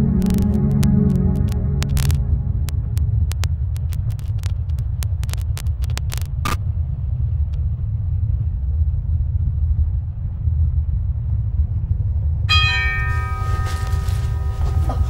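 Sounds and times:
steady low rumble: 0.0 - 15.0
sharp clicks: 0.2 - 6.6.

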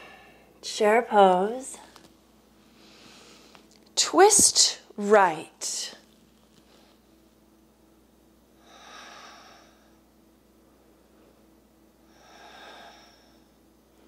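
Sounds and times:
woman breathing slowly: 0.0 - 0.6, 2.6 - 3.7, 8.6 - 13.6.

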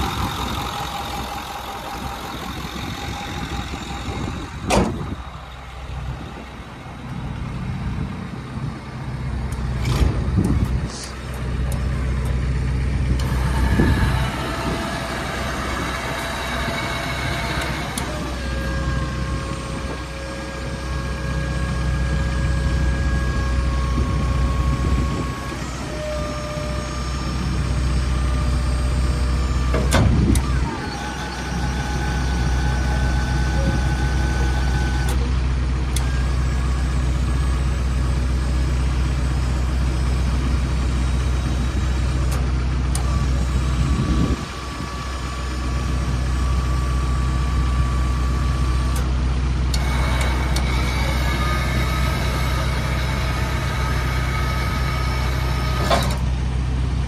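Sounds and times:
crane whining: 0.0 - 57.0
diesel truck engine idling: 0.0 - 57.0
sharp clunk: 4.7 - 5.1, 29.7 - 30.4.

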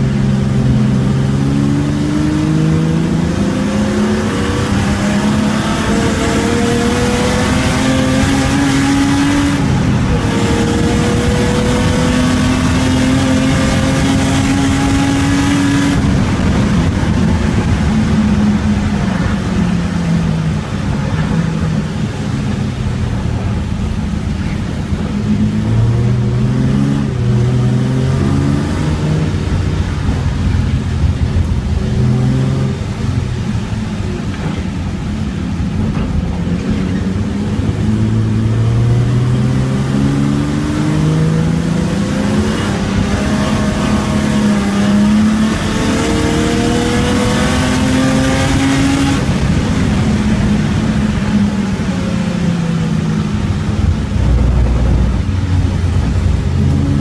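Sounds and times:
race car engine accelerating: 0.0 - 57.0.

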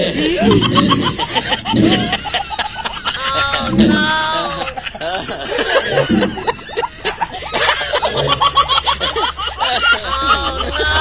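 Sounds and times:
people snickering and chuckling: 0.0 - 11.0.

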